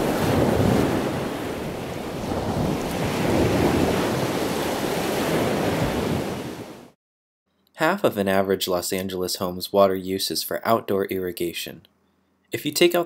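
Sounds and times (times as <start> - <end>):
ocean waves washing: 0.0 - 7.0.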